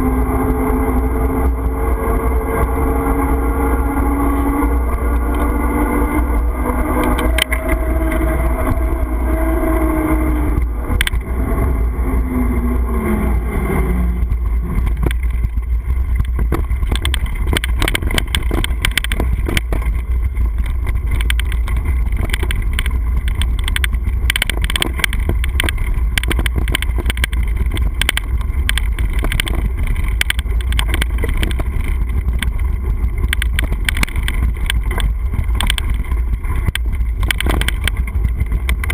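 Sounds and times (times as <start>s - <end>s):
hum dropping in pitch: 0.0s - 38.9s
wind buffeting microphone: 0.0s - 38.9s
rattle of clicks and knocks: 10.6s - 11.3s, 14.2s - 38.9s.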